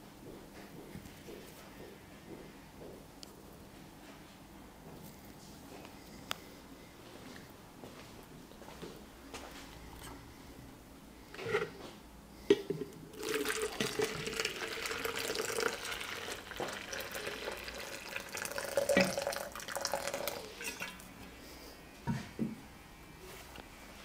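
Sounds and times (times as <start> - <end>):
water running from tap: 13.1 - 21.0.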